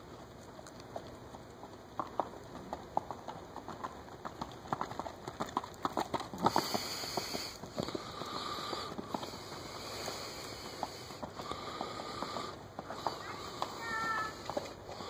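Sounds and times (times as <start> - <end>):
horse hoofbeats on dirt: 0.0 - 15.0.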